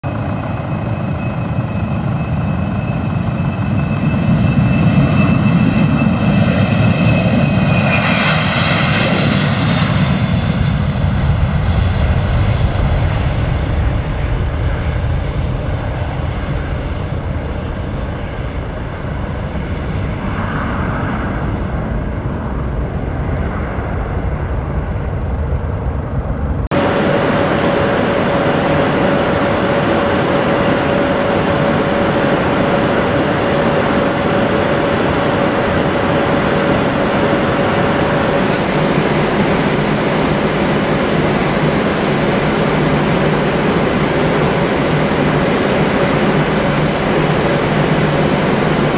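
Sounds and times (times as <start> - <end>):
cockpit hum in flight: 0.0 - 48.9
jet engines at takeoff: 0.0 - 48.9
constant tone: 25.6 - 48.9.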